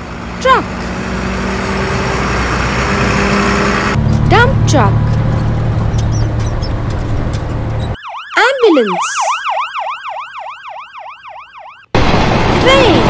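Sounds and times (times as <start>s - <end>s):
truck engine rumbling: 0.0s - 8.0s, 12.0s - 13.0s
ambulance siren yelping: 7.9s - 12.0s.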